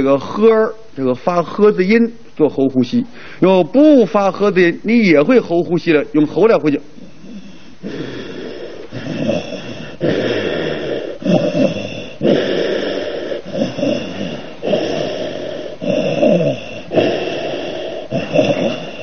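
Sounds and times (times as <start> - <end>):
man breathing through throat: 3.1 - 3.4, 7.0 - 19.0.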